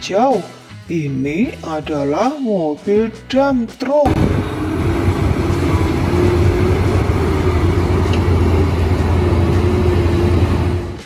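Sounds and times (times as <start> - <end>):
truck diesel engine droning: 4.1 - 11.0.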